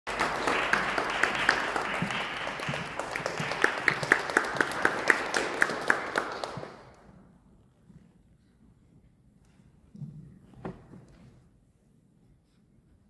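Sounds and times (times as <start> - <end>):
audience applauding: 0.0 - 7.0
person clapping loudly: 0.1 - 7.0.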